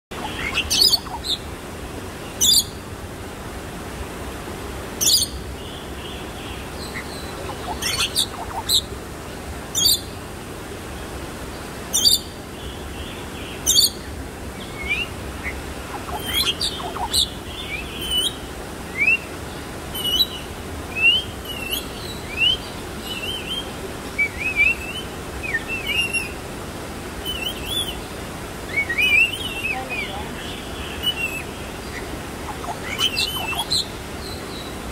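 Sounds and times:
bird harsh calls: 0.1s - 1.4s, 6.9s - 8.9s, 14.9s - 18.4s, 28.7s - 34.7s
rising whistled chirps: 32.5s - 33.8s.

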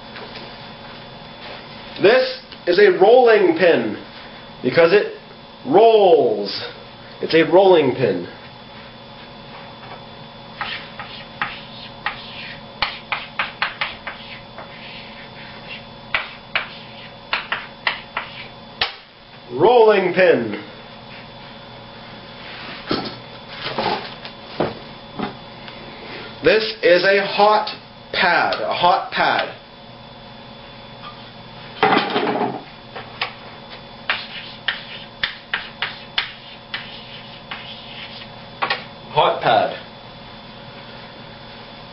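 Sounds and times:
chalk tapping and scratching: 10.6s - 18.5s, 34.1s - 38.3s.

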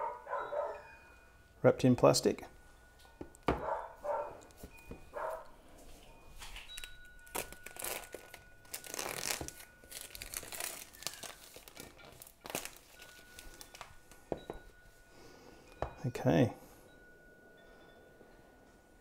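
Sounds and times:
plastic shrink-wrap tearing: 6.5s - 14.0s.

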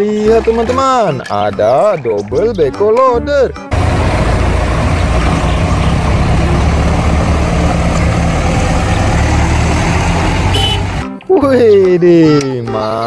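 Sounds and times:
diesel engine running: 3.7s - 11.0s.

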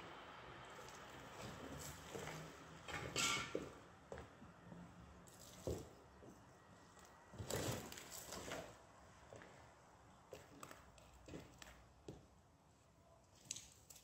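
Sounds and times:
traffic rumble: 0.0s - 12.7s.

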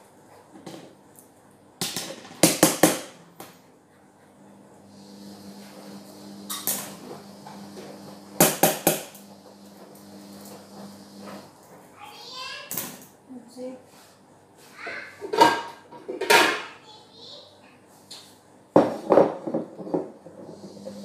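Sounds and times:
steady low hum: 3.2s - 11.8s.

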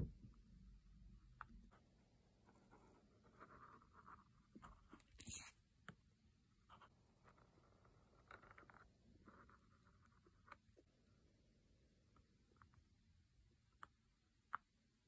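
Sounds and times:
marker tip scratching and tapping: 6.7s - 10.6s.

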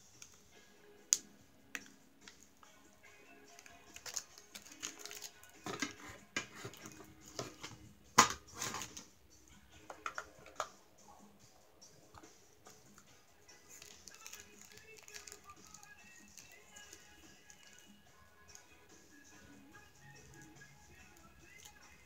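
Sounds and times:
plastic rustling and clatter: 3.9s - 9.1s, 13.7s - 17.9s.

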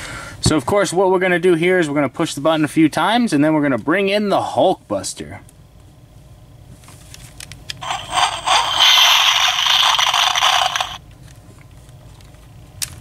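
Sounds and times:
toy speaker harsh hiss: 7.8s - 11.0s.

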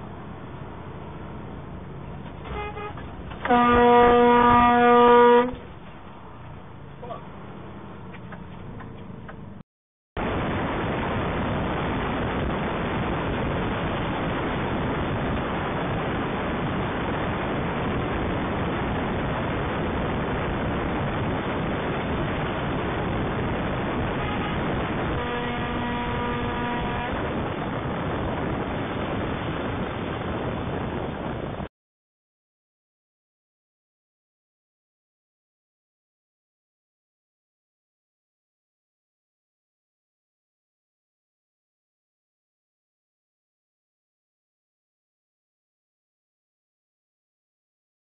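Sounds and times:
road and wind noise: 0.0s - 9.6s, 10.2s - 31.7s
truck horn: 2.4s - 5.7s, 23.8s - 28.6s.

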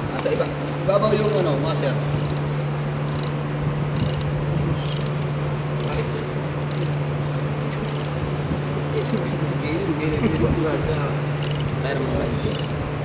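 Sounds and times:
steady low hum: 0.0s - 13.0s
ratchet wrench clicking: 0.1s - 1.5s, 2.1s - 3.4s, 4.0s - 7.1s, 7.8s - 8.3s, 9.0s - 9.3s, 10.1s - 10.5s, 11.4s - 12.9s.

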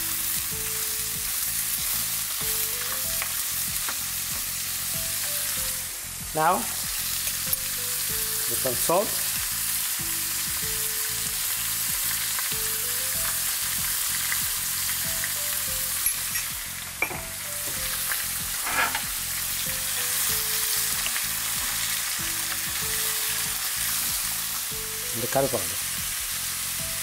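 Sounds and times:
meat sizzling in hot oil: 0.0s - 27.0s
wooden spoon scraping pan: 18.6s - 19.1s.

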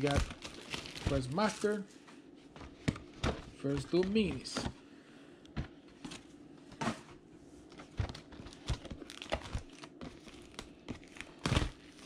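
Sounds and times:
packaging crinkling and tearing: 0.0s - 1.7s, 7.8s - 12.0s.

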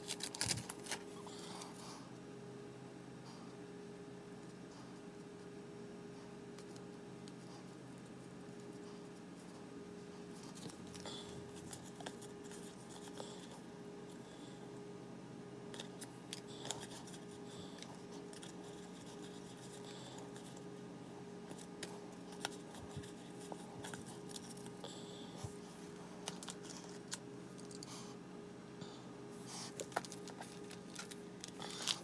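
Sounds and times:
faint hum: 0.0s - 32.0s
small clicks and scrapes: 15.7s - 20.7s, 21.5s - 24.8s, 26.2s - 27.9s, 29.7s - 32.0s.

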